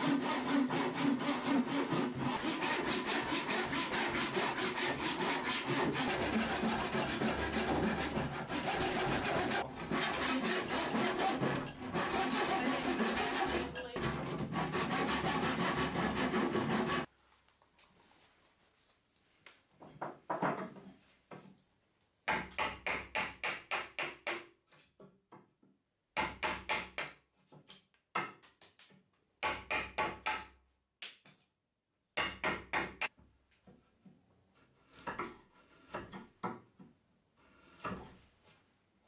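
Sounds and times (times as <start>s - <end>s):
rapid blows on a chisel: 0.0s - 17.1s
chisel paring wood by hand: 22.3s - 24.5s, 26.2s - 31.2s, 32.2s - 33.1s.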